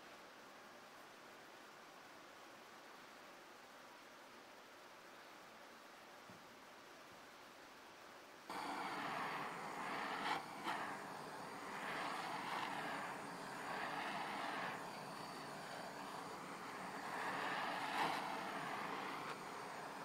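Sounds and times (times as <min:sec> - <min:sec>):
blowtorch flame hissing: 0:08.5 - 0:20.0.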